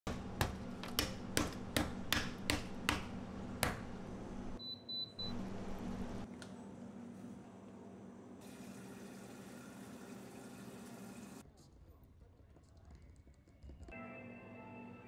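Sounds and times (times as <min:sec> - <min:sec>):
cooktop control panel double beep: 0:04.6 - 0:05.4.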